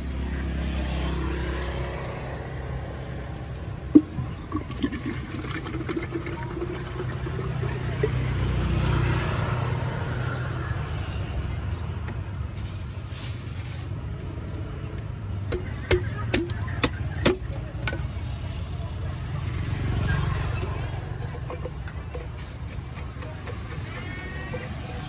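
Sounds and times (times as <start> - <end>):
coconut water pouring into cup: 3.9 - 8.6, 20.6 - 24.6.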